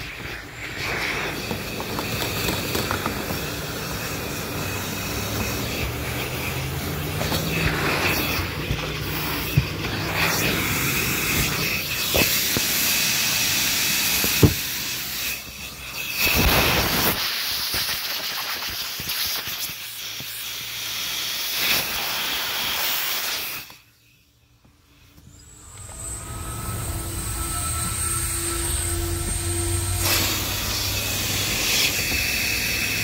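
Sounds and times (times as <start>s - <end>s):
vacuum cleaner running: 0.0s - 17.6s, 25.2s - 33.0s.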